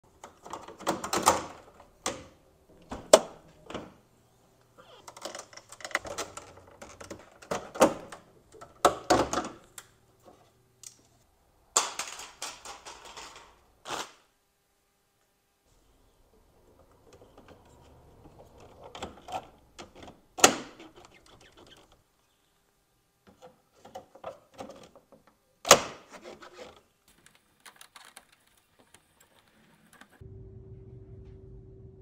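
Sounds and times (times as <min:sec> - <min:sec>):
plastic scraping rattles: 0:05.0 - 0:09.6.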